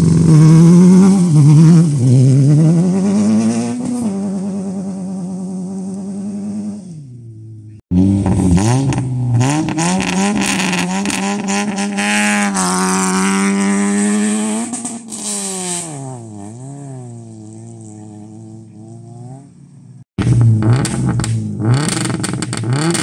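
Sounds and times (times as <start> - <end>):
car engine revving with pops: 7.6 - 19.6, 20.2 - 23.0.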